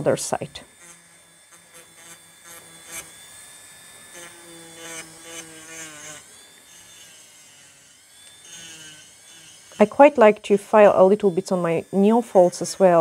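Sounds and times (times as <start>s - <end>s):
electric nail file motor whine: 0.0s - 13.0s.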